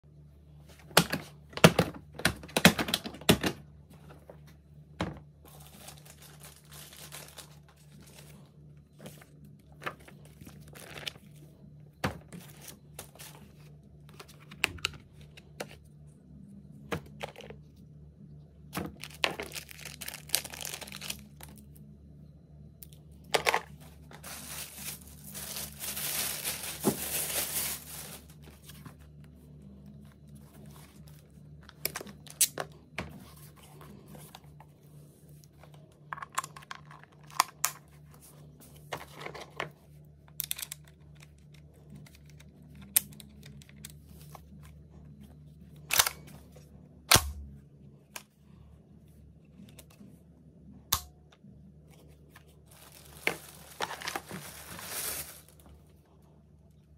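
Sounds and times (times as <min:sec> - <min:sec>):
faint steady hum: 0:00.0 - 0:56.9
plastic wrapping crinkling and tearing: 0:05.5 - 0:08.5, 0:18.9 - 0:21.8, 0:24.0 - 0:28.8, 0:52.4 - 0:55.8.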